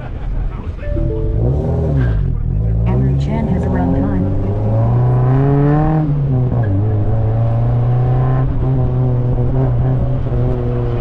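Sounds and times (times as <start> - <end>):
car engine revving: 0.4 - 11.0.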